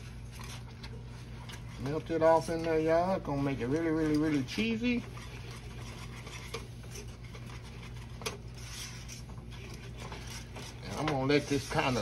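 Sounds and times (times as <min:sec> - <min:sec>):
steady low hum: 0:00.0 - 0:12.0
whisk scraping metal saucepan: 0:00.0 - 0:12.0
whisk tapping pan: 0:00.0 - 0:12.0.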